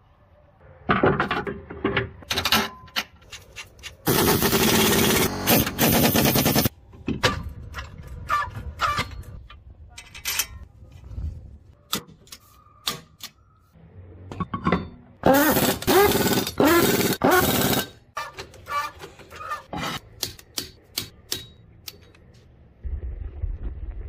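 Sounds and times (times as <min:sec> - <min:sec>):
impact wrench running: 0:04.1 - 0:06.7, 0:15.3 - 0:17.9.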